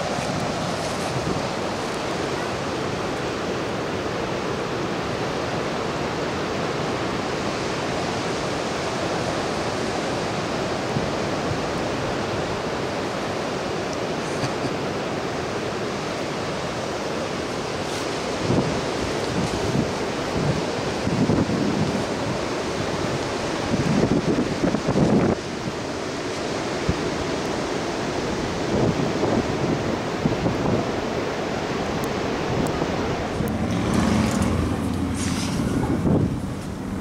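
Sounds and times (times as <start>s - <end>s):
ocean surf breaking: 0.0s - 37.0s.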